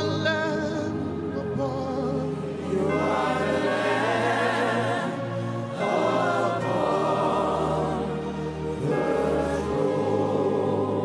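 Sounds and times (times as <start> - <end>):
choir singing: 1.4 - 11.0.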